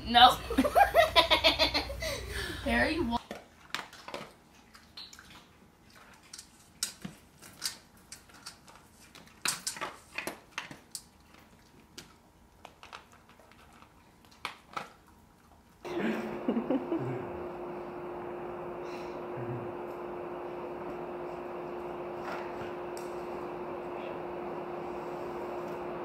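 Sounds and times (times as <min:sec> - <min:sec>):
steady hiss with low hum: 0:00.0 - 0:03.8
cat crunching dry kibble: 0:08.3 - 0:15.7.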